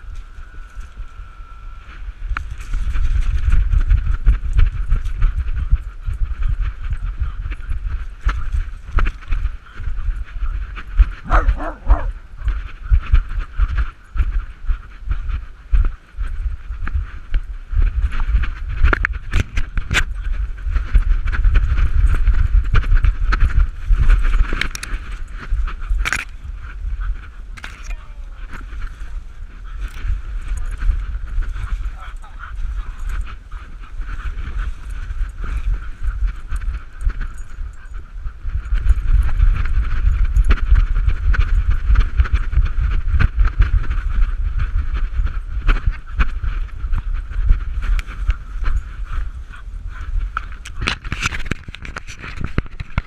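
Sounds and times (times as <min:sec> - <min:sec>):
wind rumble: 0:00.0 - 0:53.0
rubbing on camera housing: 0:50.3 - 0:53.0.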